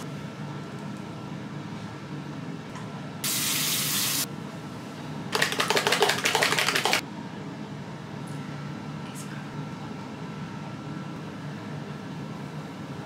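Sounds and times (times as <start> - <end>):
plastic bottle rattling shaken: 5.3 - 7.0.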